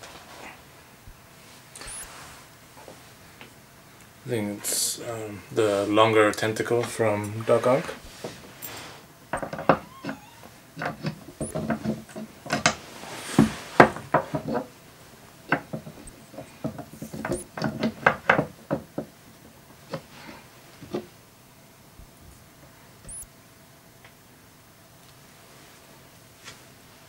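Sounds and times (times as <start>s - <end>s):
clicks and knocks of statue parts: 9.3s - 10.2s.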